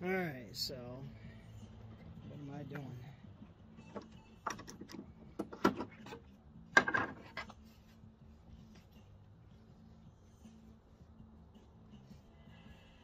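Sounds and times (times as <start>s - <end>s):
wood and tools knocking: 3.9s - 7.5s.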